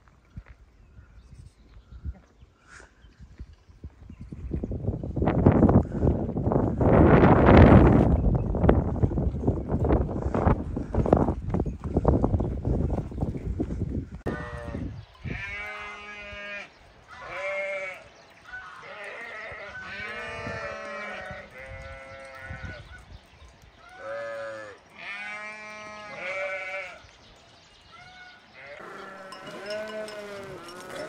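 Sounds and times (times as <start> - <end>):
sheep bleating: 14.3 - 22.8, 23.9 - 27.0, 28.3 - 31.0.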